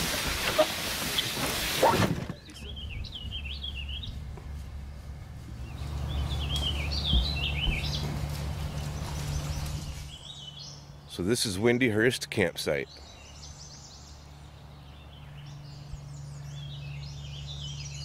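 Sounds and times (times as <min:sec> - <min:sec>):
steady low rumble: 0:02.4 - 0:11.2.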